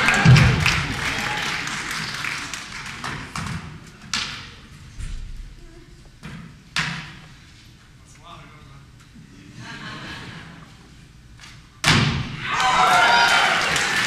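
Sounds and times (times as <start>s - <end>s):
audience noise: 0.0s - 4.0s, 12.4s - 14.0s.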